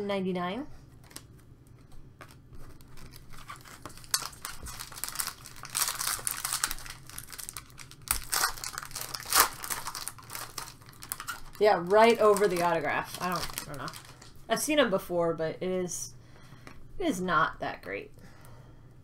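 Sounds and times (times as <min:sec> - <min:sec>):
foil wrapper crinkling and tearing: 0:02.2 - 0:14.4.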